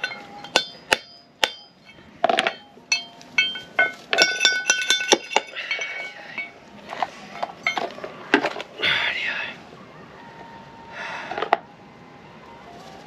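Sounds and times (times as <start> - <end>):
hammer striking metal with ringing: 0.0 - 6.6.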